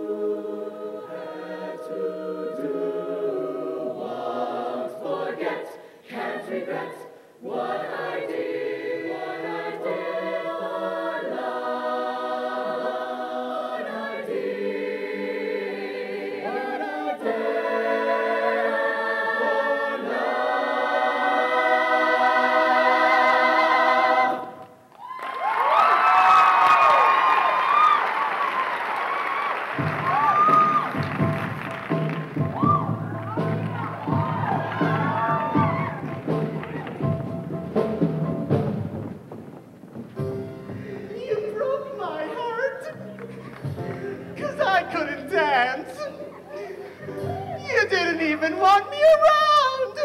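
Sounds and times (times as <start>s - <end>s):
choir singing in harmony: 0.0s - 24.8s, 30.6s - 38.5s, 40.5s - 50.0s.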